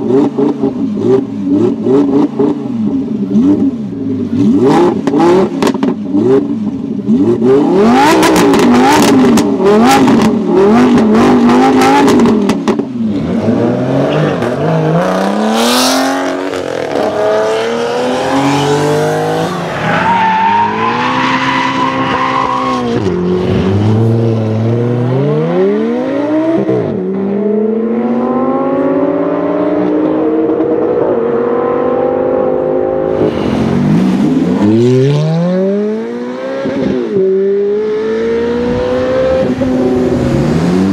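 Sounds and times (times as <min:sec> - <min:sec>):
sports car engine revving: 0:00.0 - 0:21.2
sports car accelerating through upshifts: 0:00.0 - 0:40.9.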